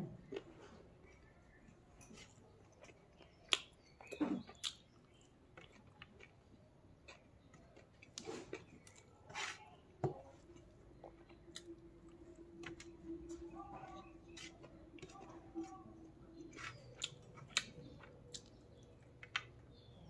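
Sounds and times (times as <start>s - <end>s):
chewing and mouth smacks: 0.2s - 9.2s, 10.2s - 19.9s
fingers scraping food on plate: 13.3s - 18.0s.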